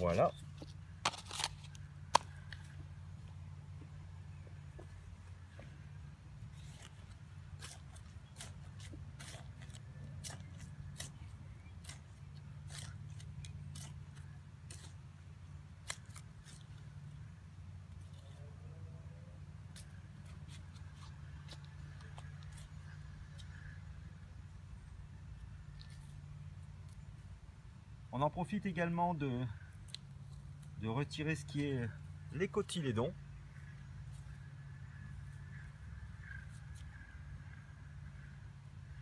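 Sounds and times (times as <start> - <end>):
steady low hum: 0.0 - 39.0
hand trowel scraping soil: 6.5 - 15.2.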